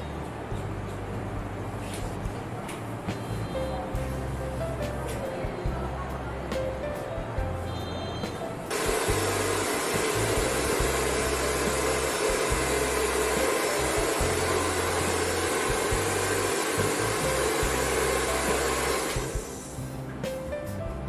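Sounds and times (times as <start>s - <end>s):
hair dryer blowing: 8.7s - 19.8s.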